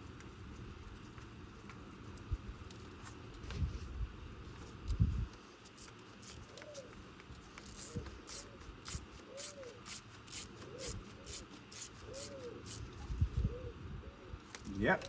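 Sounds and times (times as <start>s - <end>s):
pigeon cooing: 6.5s - 7.0s, 7.8s - 14.2s.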